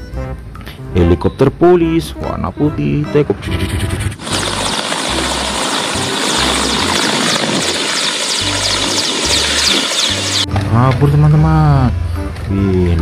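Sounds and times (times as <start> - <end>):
helicopter flying low: 3.8 - 10.5.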